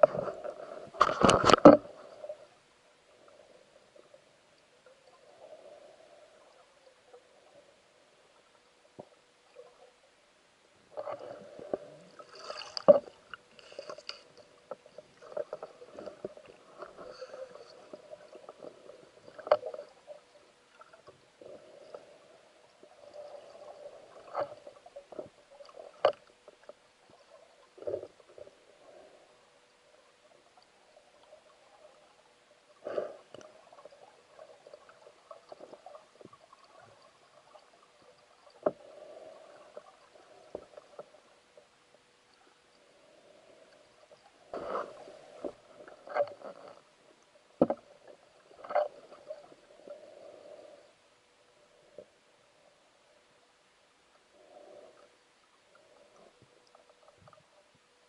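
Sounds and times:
faint steady hum: 0.0s - 58.0s
swirling underwater water noise: 10.8s - 53.2s.

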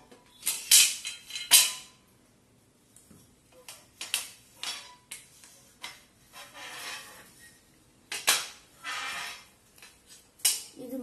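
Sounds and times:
metal beam scraping: 6.3s - 7.6s, 8.8s - 9.5s.

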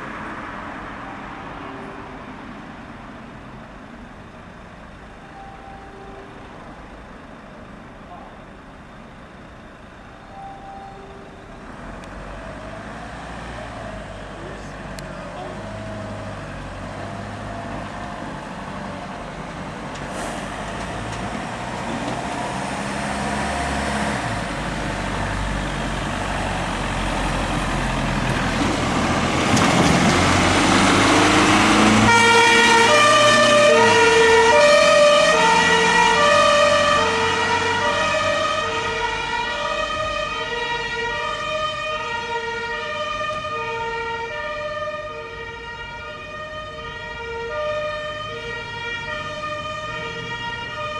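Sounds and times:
diesel engines passing: 0.0s - 50.9s
two-tone siren: 5.2s - 7.0s, 10.1s - 14.0s, 32.0s - 50.9s.

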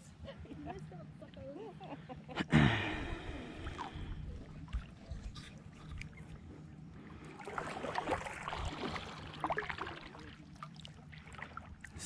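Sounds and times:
kayak paddle splashing in water: 7.3s - 12.0s.

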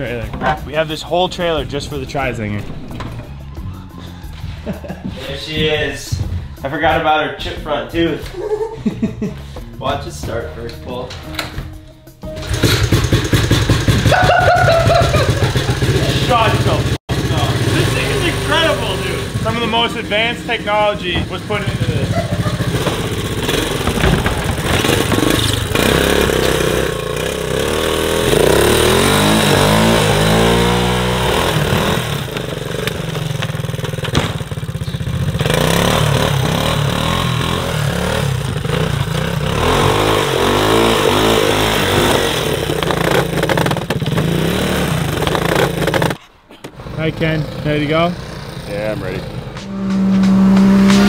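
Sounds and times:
small engine revving: 14.8s - 46.2s, 46.8s - 51.0s.

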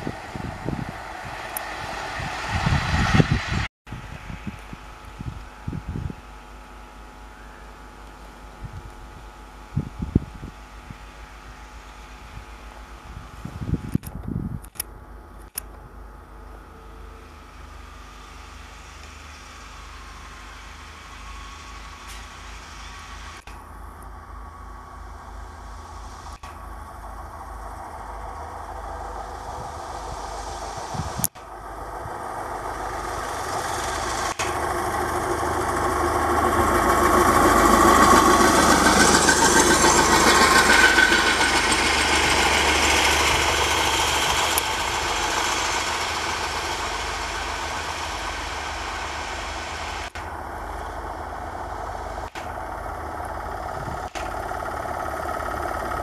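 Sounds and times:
rail trolley engines running: 0.0s - 56.0s
sharp click: 13.9s - 15.8s.

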